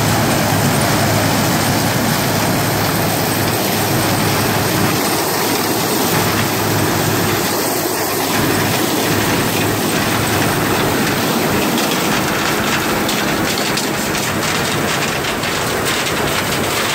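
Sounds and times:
combine harvester machinery: 0.0s - 16.9s.

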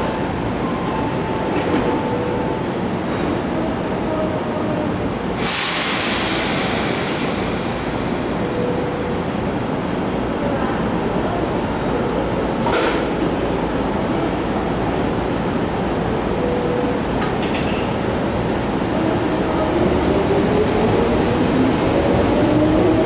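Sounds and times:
pneumatic door air hiss: 5.4s - 8.1s
electric train humming: 13.3s - 23.0s.

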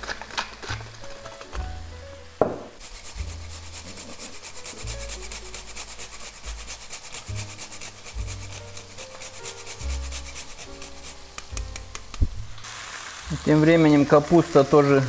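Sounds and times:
nutmeg scraping on grater: 2.8s - 11.5s.

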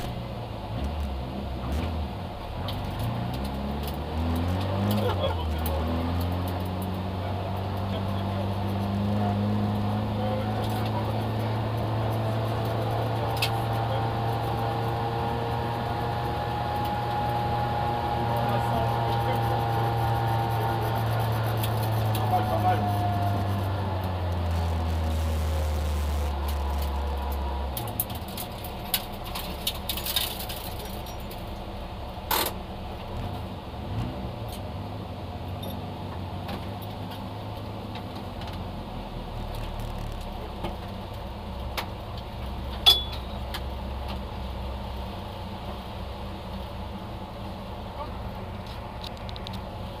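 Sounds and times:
car engine drone inside cabin: 0.0s - 50.0s.

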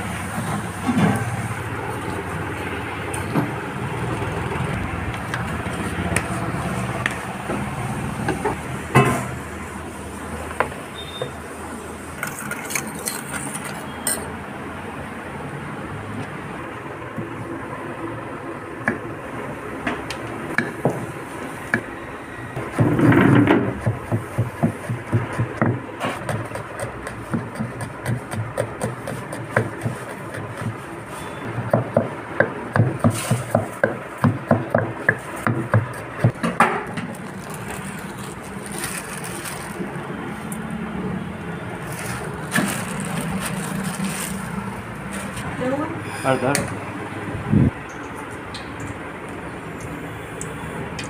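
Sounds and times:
steady background noise: 0.0s - 51.0s
knife chopping on wooden board: 23.6s - 30.8s.

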